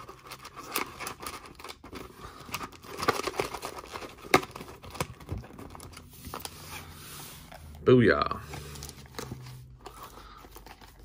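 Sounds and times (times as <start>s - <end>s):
cardboard and packs rustling: 0.0s - 11.0s.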